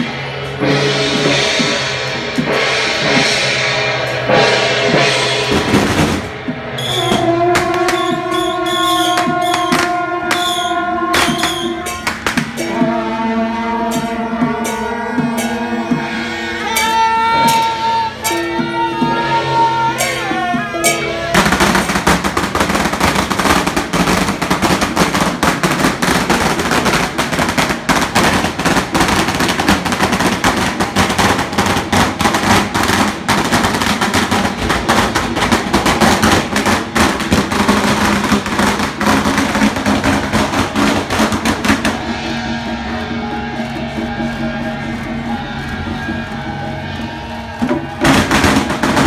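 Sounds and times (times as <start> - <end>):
processional music: 0.0 - 49.0
firecrackers crackling rapidly: 5.4 - 13.4, 20.9 - 49.0.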